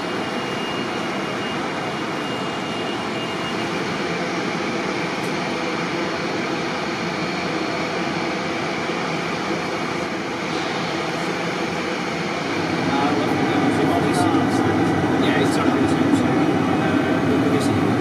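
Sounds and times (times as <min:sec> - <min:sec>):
machinery and air rushing: 0:03.7 - 0:18.0.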